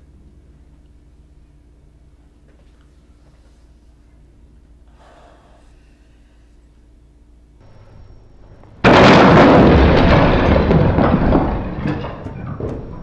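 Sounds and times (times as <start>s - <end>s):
loud explosion: 8.7s - 13.0s.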